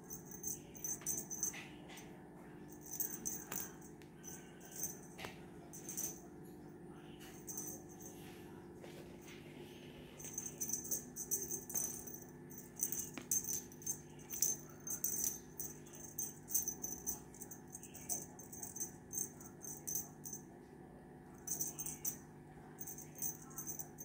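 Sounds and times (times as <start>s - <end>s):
cat toy rattling and jingling: 0.0s - 2.0s, 2.7s - 6.2s, 7.2s - 8.2s, 10.2s - 20.4s, 21.4s - 22.2s, 22.8s - 24.0s.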